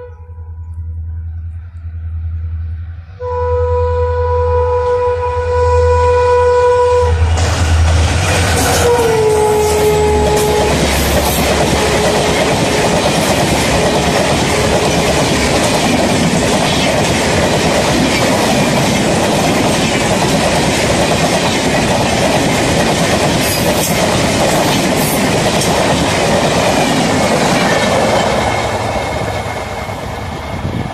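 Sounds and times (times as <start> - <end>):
locomotive horn: 0.0 - 0.6, 3.2 - 7.4, 8.6 - 13.0, 13.7 - 15.6
locomotive engine humming: 0.0 - 30.9.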